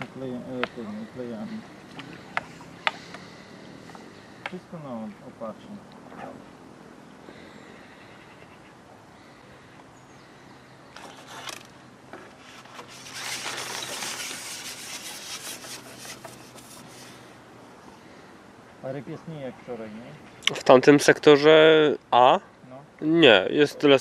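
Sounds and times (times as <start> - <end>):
fishing pole scraping through hands: 11.0 - 17.4.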